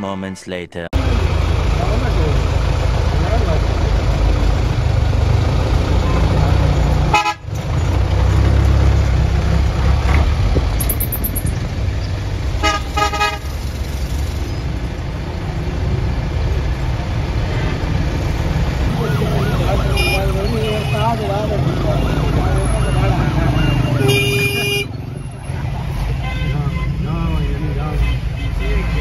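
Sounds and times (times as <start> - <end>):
traffic engine rumble: 0.9 - 29.0
car horn honks: 7.1 - 7.4, 12.6 - 13.5, 18.9 - 25.0, 26.2 - 29.0.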